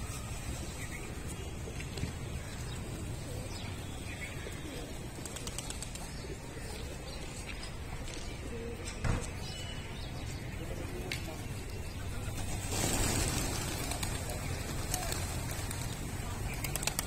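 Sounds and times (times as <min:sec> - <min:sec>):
pigeons cooing: 0:02.6 - 0:07.0.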